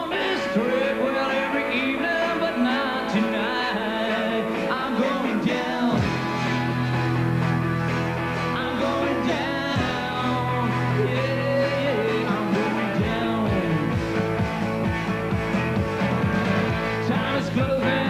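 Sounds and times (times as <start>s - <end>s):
electric guitar bending notes: 0.0s - 18.0s
bass notes: 5.9s - 18.0s
drum beat: 13.0s - 18.0s.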